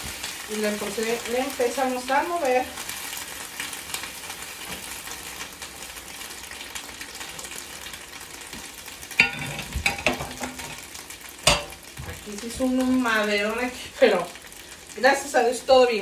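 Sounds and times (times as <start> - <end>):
beans sizzling in hot fat: 0.0 - 16.0
spoon stirring in skillet: 8.5 - 12.7.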